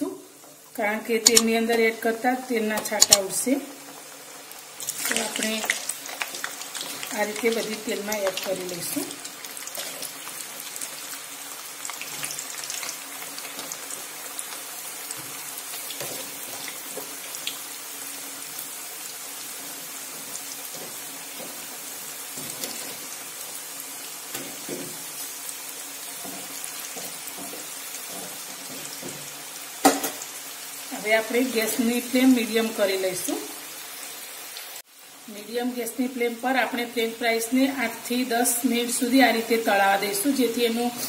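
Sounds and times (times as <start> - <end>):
fries sizzling in hot oil: 0.0 - 41.0
sharp click: 1.3 - 1.5.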